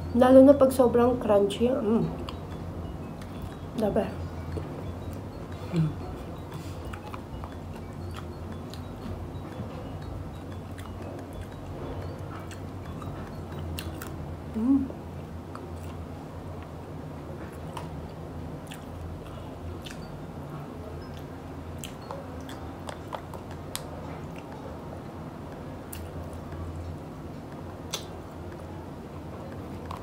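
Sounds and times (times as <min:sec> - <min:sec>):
steady low hum: 0:00.0 - 0:30.0
crunchy chewing and biting: 0:05.9 - 0:14.2, 0:21.1 - 0:24.6.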